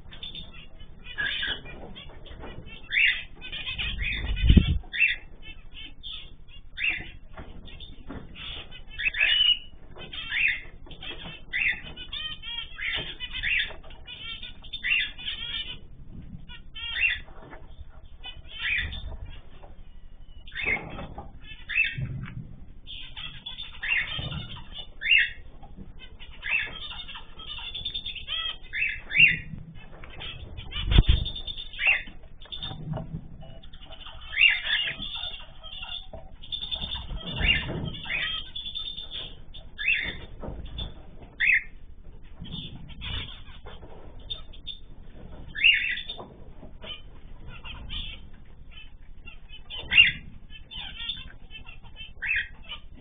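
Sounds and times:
cage birds chirping: 0.0s - 53.0s.

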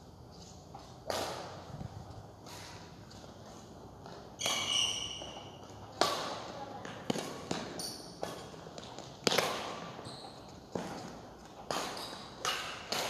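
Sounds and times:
rackets striking shuttlecock: 0.9s - 1.7s, 4.3s - 10.1s, 10.7s - 13.0s.

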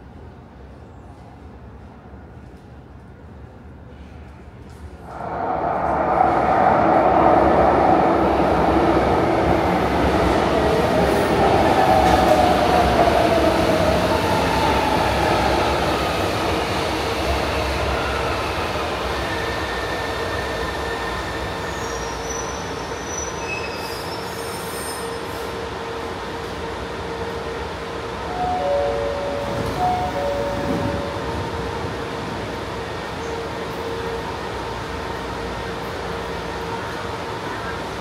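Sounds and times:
electric train humming drone: 4.6s - 23.0s, 25.2s - 38.0s
wheels squealing on rails: 17.6s - 25.6s.

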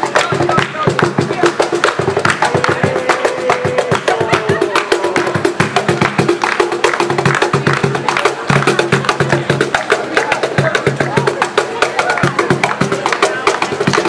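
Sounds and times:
fast cajon drumming: 0.0s - 14.0s.

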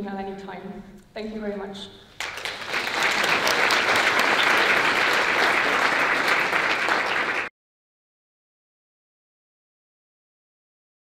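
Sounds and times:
audience applauding: 2.2s - 7.5s.

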